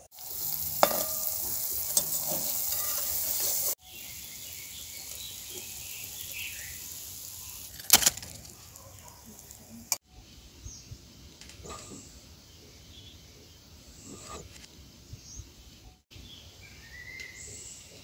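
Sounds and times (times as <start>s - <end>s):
hot oil sizzling: 0.0s - 10.0s
metal spoon clinking on wok: 0.8s - 3.7s.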